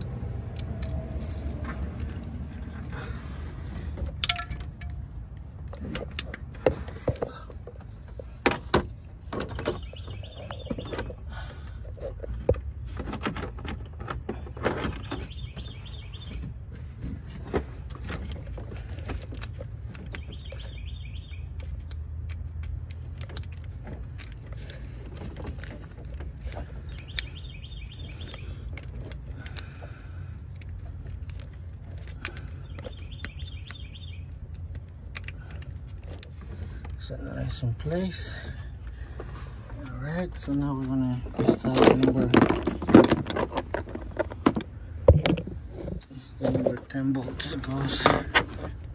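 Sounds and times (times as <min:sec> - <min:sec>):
tools and parts clinking: 0:00.0 - 0:02.8, 0:03.9 - 0:16.4, 0:17.3 - 0:39.0, 0:39.6 - 0:48.9
steady low rumble: 0:00.0 - 0:48.9
bird chirping: 0:09.5 - 0:11.6, 0:14.9 - 0:16.6, 0:19.9 - 0:21.9, 0:26.3 - 0:29.2, 0:32.2 - 0:35.6.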